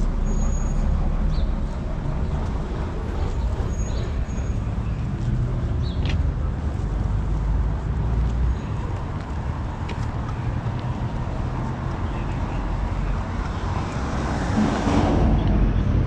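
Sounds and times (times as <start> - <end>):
street traffic rumble: 0.0 - 16.0
vehicle passing close by: 12.6 - 16.0.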